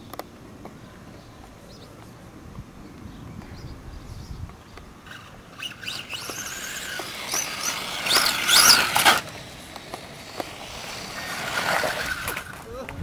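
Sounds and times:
radio-controlled car motors whining: 5.0 - 12.6.

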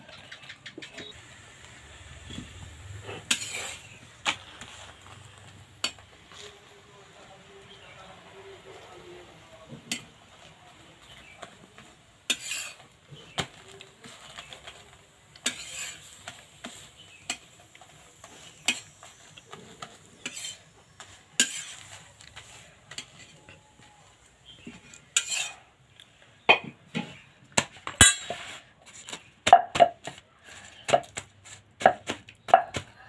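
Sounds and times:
metal spatula scraping griddle: 1.8 - 25.8, 28.0 - 29.3.

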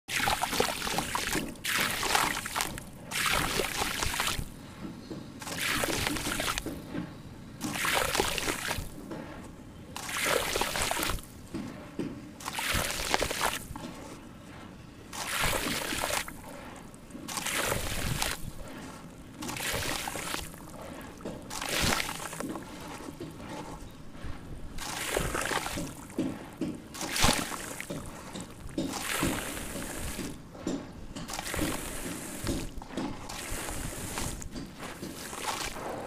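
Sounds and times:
powder pouring into water: 15.2 - 23.5, 24.8 - 28.3, 31.3 - 32.6, 33.2 - 35.8.

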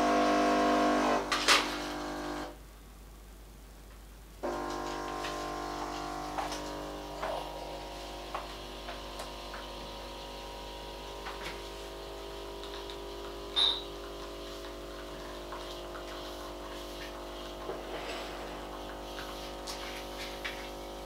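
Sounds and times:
espresso machine pump humming: 0.0 - 2.6, 4.4 - 21.0
espresso streaming into cups: 0.0 - 2.6, 4.4 - 21.0
sharp clink: 13.5 - 13.9.

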